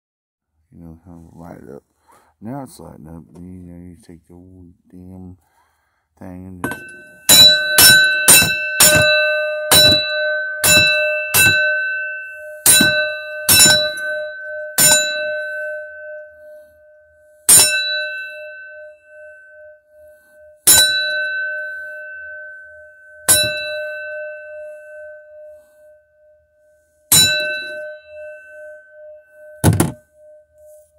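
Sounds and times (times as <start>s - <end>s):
hammer striking metal bell gong: 6.6s - 25.7s, 27.1s - 30.9s.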